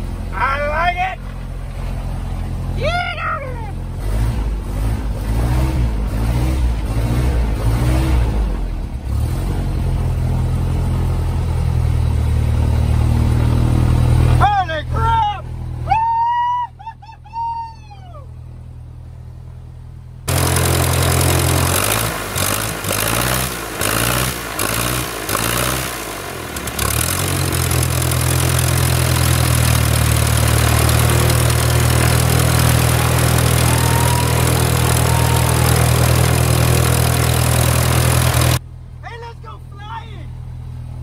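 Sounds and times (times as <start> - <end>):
aircraft piston engine running: 20.3 - 38.6.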